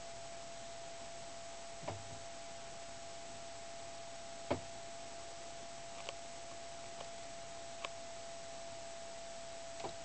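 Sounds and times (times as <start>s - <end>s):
recording hiss: 0.0s - 10.0s
thin steady hum: 0.0s - 10.0s.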